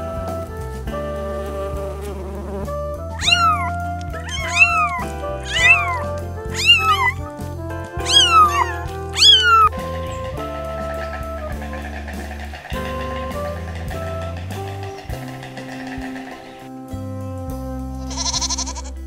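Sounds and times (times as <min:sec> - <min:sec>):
background music with bass: 0:00.0 - 0:19.0
animal high cry: 0:03.1 - 0:07.4, 0:08.0 - 0:16.7, 0:18.0 - 0:19.0.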